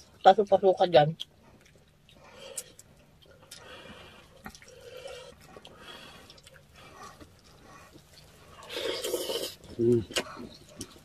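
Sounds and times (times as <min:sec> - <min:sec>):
soft chewing and sipping: 0:00.0 - 0:11.0.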